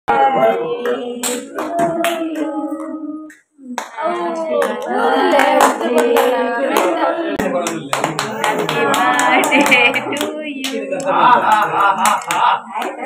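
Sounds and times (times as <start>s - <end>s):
group singing: 0.1s - 13.0s
hand claps: 7.6s - 13.0s.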